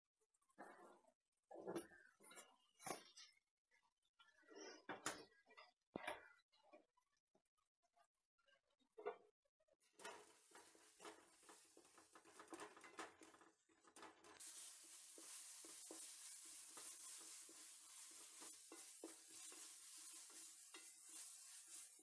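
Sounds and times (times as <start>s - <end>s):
food sizzling in a pot: 10.0s - 22.0s
spatula scraping metal pot: 10.0s - 22.0s.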